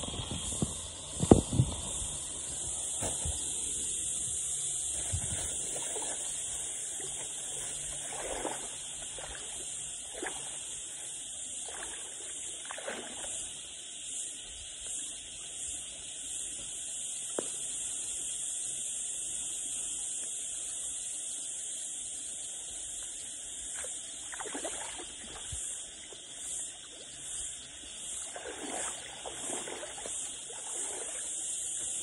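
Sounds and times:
water splashing and sloshing: 0:00.0 - 0:13.8, 0:23.6 - 0:32.0
steady high-pitched hiss: 0:00.0 - 0:32.0.

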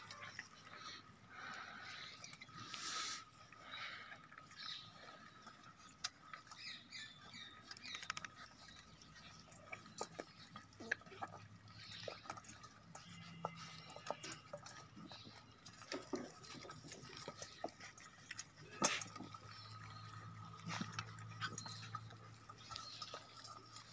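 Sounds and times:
puppies lapping from metal bowls: 0:00.0 - 0:23.9.

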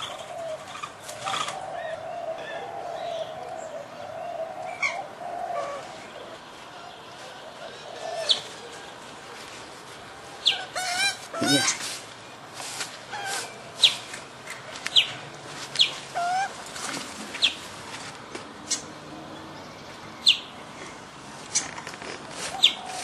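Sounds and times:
warbling bird calls: 0:00.0 - 0:09.0, 0:10.4 - 0:11.9, 0:22.3 - 0:23.0.

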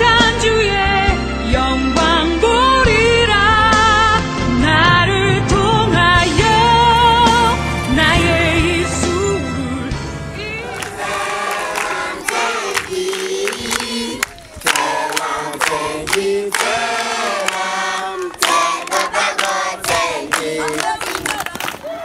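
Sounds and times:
children singing in chorus: 0:10.4 - 0:21.0
hand clapping: 0:10.7 - 0:21.9.

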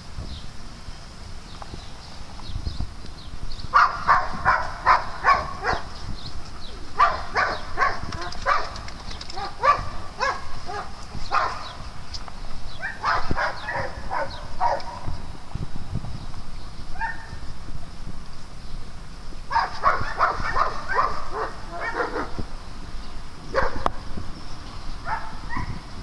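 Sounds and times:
dogs barking: 0:03.7 - 0:05.9, 0:06.9 - 0:11.8, 0:12.8 - 0:15.1, 0:17.0 - 0:17.4, 0:19.5 - 0:22.4, 0:23.5 - 0:24.0, 0:25.0 - 0:25.8.

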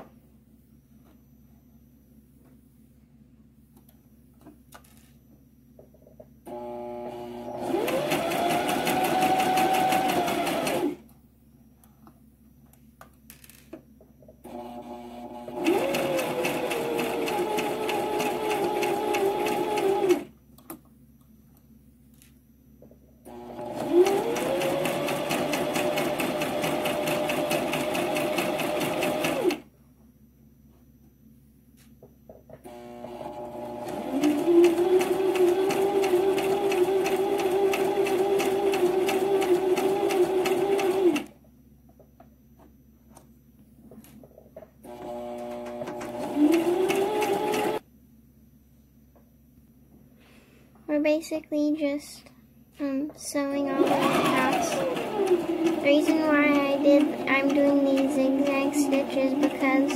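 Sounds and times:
sewing machine stitching: 0:06.5 - 0:11.0, 0:14.5 - 0:20.3, 0:23.3 - 0:29.6, 0:32.7 - 0:41.3, 0:44.9 - 0:47.8, 0:53.6 - 0:59.9.

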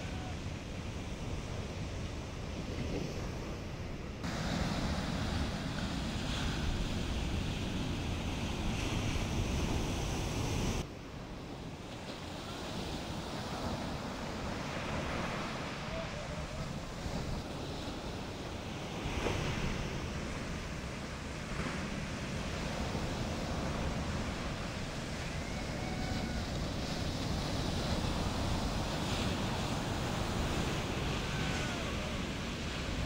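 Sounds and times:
ocean surf washing: 0:00.0 - 0:33.0
wind buffeting microphone: 0:11.7 - 0:33.0.

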